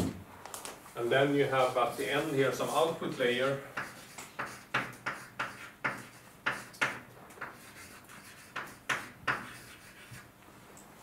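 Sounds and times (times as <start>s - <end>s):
sharp scrapes on a board: 3.8s - 10.3s.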